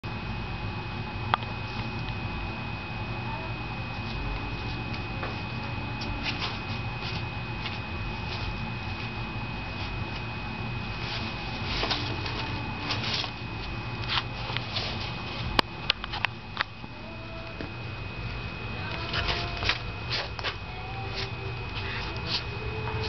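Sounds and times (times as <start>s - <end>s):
paper rustling and crinkling: 11.0s - 16.2s.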